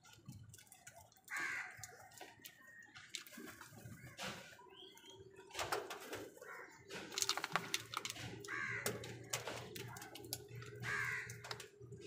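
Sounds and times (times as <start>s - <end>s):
crows cawing: 1.2s - 2.8s, 6.4s - 7.0s, 8.2s - 12.0s
beaks pecking in plastic bowl: 6.2s - 12.0s.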